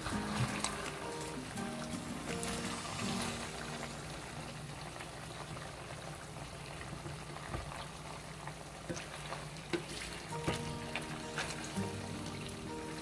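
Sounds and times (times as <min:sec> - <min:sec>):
liquid boiling in saucepan: 0:00.0 - 0:13.0
wooden spoon stirring: 0:08.9 - 0:12.4.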